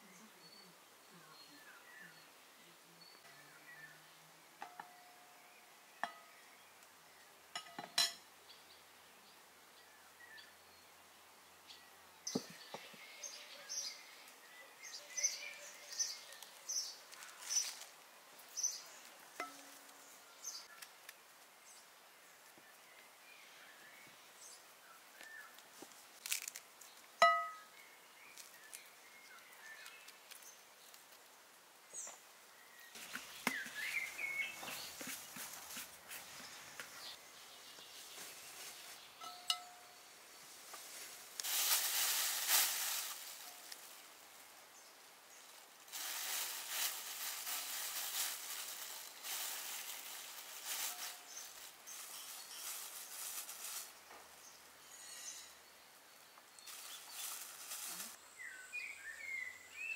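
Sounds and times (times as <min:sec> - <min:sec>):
birds chirping: 0:00.0 - 0:21.0, 0:31.9 - 0:41.1
dish clinking: 0:27.2 - 0:27.6, 0:39.2 - 0:39.9.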